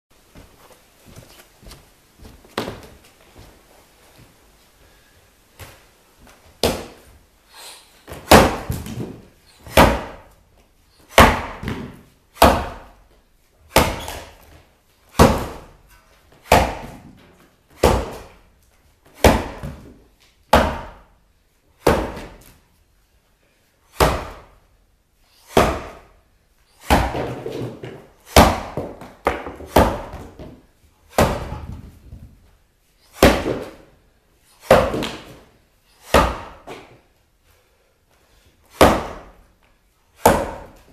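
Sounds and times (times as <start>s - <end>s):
axe chopping into log: 8.3s - 9.1s, 11.1s - 12.9s, 13.8s - 14.3s, 15.2s - 15.7s, 16.5s - 17.0s, 17.8s - 18.3s, 24.0s - 24.5s, 25.5s - 26.0s, 31.1s - 31.7s, 36.1s - 36.8s, 38.8s - 39.3s, 40.2s - 40.7s.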